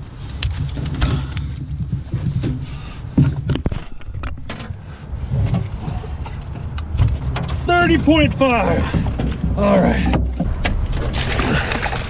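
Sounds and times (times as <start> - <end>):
knocks and thumps of handling: 0.4 - 11.4.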